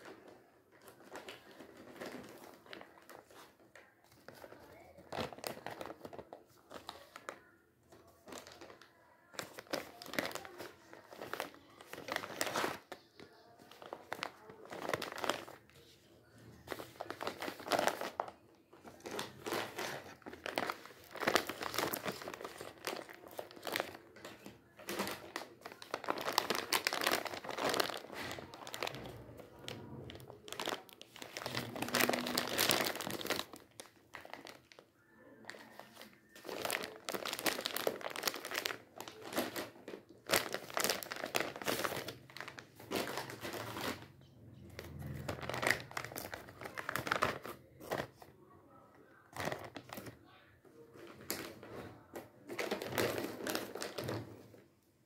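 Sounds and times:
plastic packets crinkling: 0.0 - 48.3, 49.1 - 50.3, 50.9 - 54.6.

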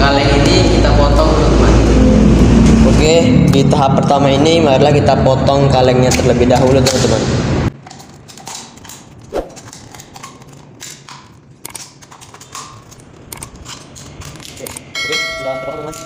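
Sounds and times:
steady chiming tone: 14.9 - 16.0.

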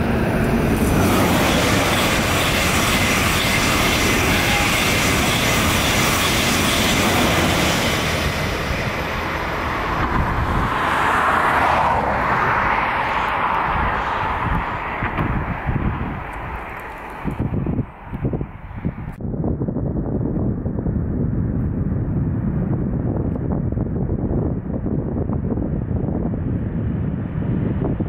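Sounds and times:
high-speed train rushing past: 0.0 - 19.1.

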